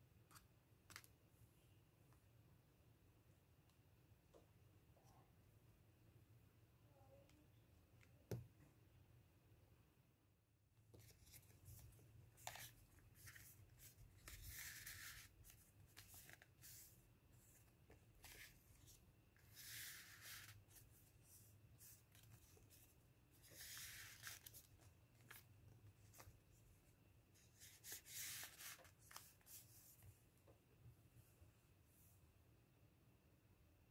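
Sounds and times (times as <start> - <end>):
paper rustling and crinkling: 11.0 - 26.4, 27.4 - 30.0.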